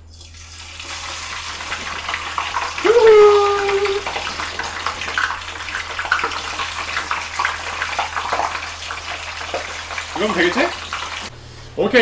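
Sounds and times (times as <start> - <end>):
potatoes deep-frying in oil: 0.0 - 11.3.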